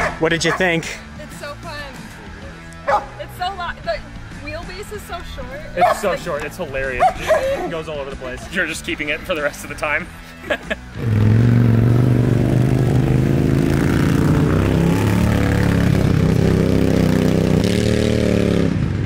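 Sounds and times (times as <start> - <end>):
off-road vehicle engine running: 10.7 - 19.0.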